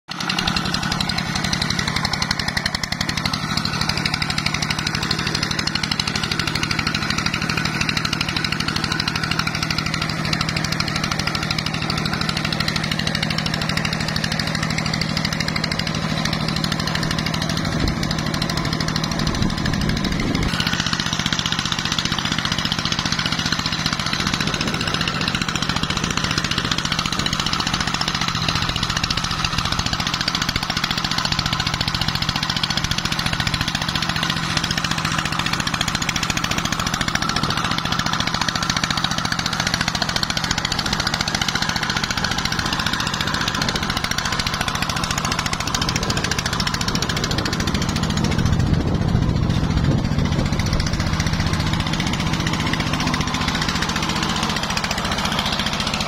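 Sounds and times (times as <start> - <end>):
diesel engine thumping: 0.1 - 56.0
low rough rumble: 41.9 - 55.2.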